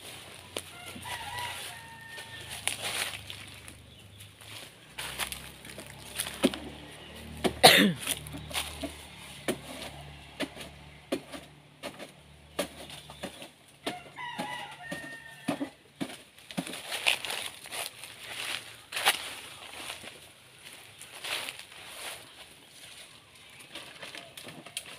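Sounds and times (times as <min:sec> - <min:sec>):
dry banana leaves snapping: 0:00.4 - 0:03.8, 0:04.4 - 0:20.2, 0:23.5 - 0:24.9
rooster crowing: 0:00.6 - 0:03.4, 0:13.9 - 0:15.8.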